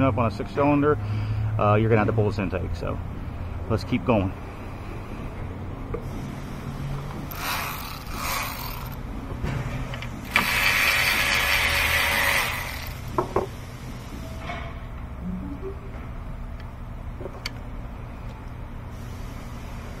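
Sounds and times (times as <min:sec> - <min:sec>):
ratchet wrench clicking: 0:07.3 - 0:09.0, 0:10.3 - 0:13.0.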